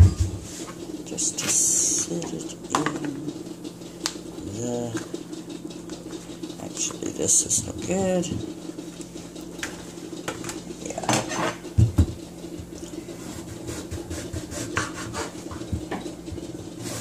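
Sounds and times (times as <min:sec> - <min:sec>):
knocks on wooden board: 0:11.8 - 0:12.2
knife scraping on cutting board: 0:13.2 - 0:15.4.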